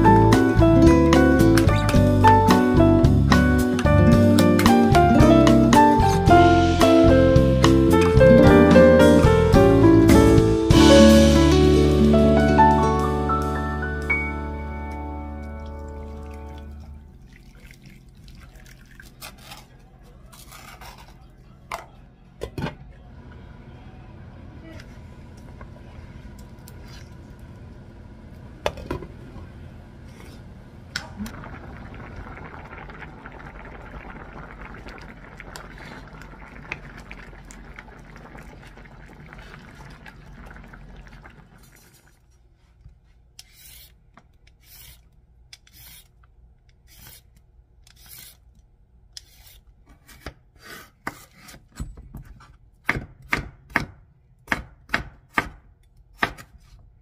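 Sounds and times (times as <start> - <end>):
braise simmering with a hiss: 30.0 - 42.2.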